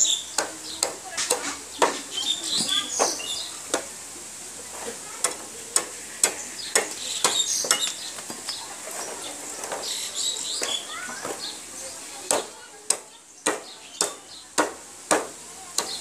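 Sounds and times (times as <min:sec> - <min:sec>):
blade chopping bamboo: 0:00.3 - 0:02.1, 0:05.2 - 0:08.0, 0:12.3 - 0:16.0.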